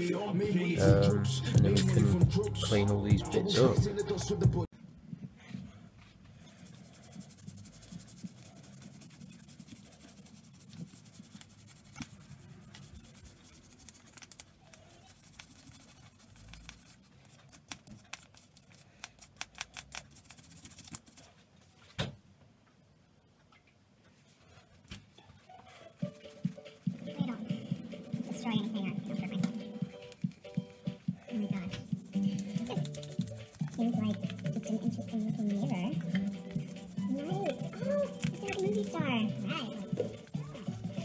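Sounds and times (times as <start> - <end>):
toothbrush scrubbing metal: 6.4 - 21.4, 25.7 - 41.0.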